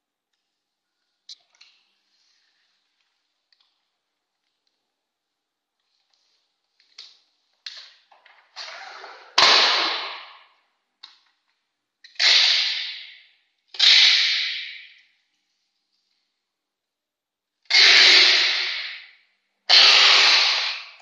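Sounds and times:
packing tape ripping: 0:12.1 - 0:13.0, 0:19.7 - 0:21.0.

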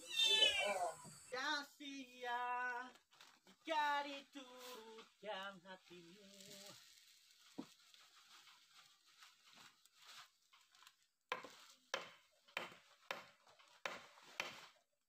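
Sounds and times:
hammer striking wooden plank: 0:11.3 - 0:14.7.

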